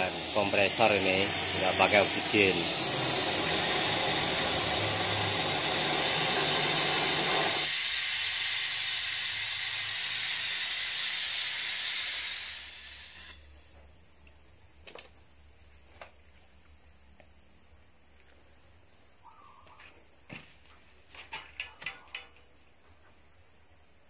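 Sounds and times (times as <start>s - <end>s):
torch flame roaring: 0.0s - 13.4s
gas hissing from nozzle: 0.0s - 13.7s.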